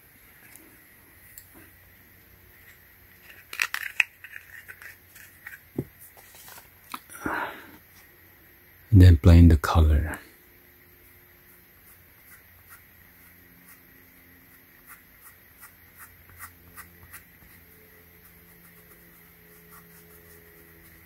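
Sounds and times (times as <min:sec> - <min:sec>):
cloth rubbing on foam shoe: 0:14.5 - 0:21.0.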